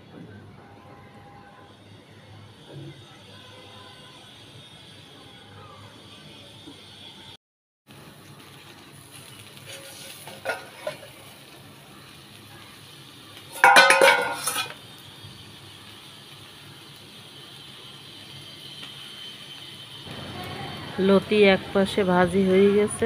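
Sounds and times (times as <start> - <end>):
food sizzling: 7.9 - 23.0
metal clattering on metal: 9.7 - 11.2, 13.6 - 14.8.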